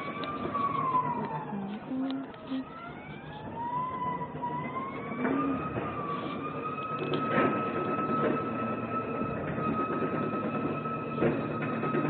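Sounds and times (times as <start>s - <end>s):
electric motor whining: 0.1s - 7.3s.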